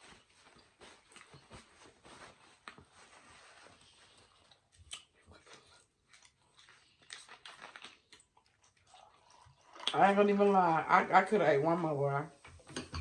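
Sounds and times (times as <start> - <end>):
paper napkin rustling: 0.0 - 4.4.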